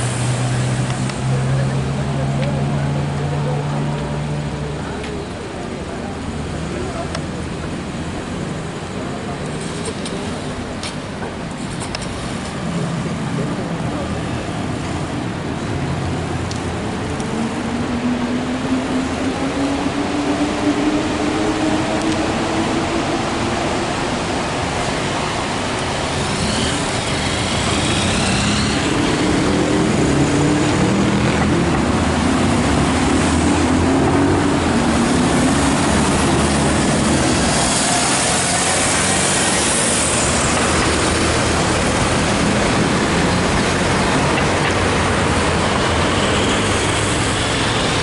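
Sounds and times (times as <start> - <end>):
surrounding traffic noise: 0.0 - 48.0.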